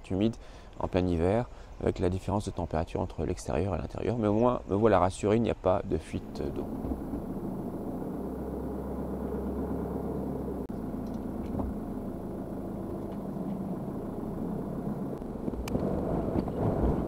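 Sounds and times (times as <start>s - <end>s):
road noise: 5.9s - 17.0s
van engine running: 6.2s - 17.0s.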